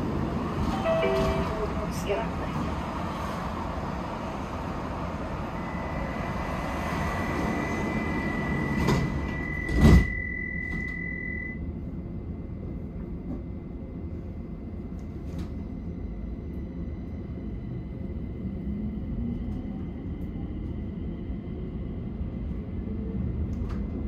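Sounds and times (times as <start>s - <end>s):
train hum: 0.0s - 24.0s
high tone: 0.7s - 1.8s
sliding doors shutting with thud: 7.3s - 10.9s.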